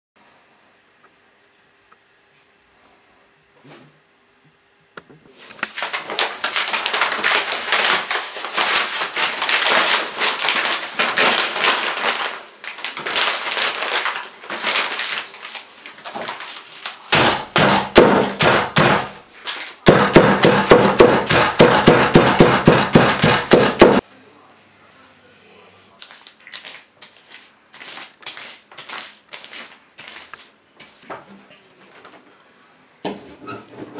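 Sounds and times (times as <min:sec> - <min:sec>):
crinkly sheet crumpling: 0:05.4 - 0:17.1, 0:26.0 - 0:31.1
rubber mallet beating on wood: 0:17.1 - 0:19.1, 0:19.8 - 0:24.0.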